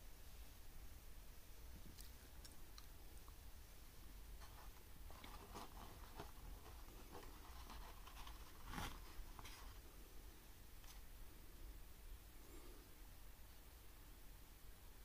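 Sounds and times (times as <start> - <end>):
pastry rustling in cardboard tray: 4.4 - 10.0.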